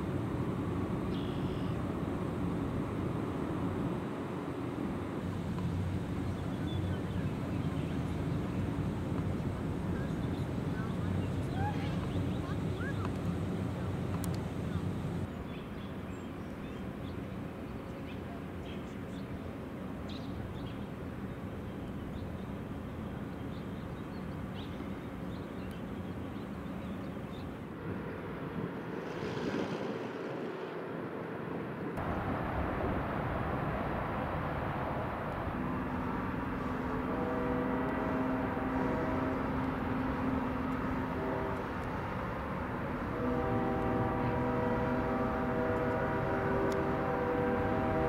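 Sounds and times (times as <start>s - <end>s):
low hum: 26.8s - 48.0s
low rumble: 27.8s - 39.8s.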